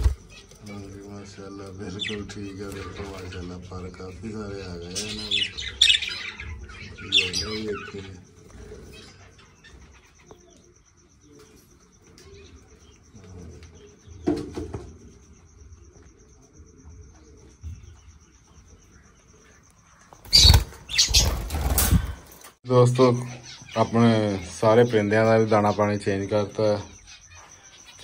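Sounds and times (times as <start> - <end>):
chicks chirping softly: 0.0 - 21.4.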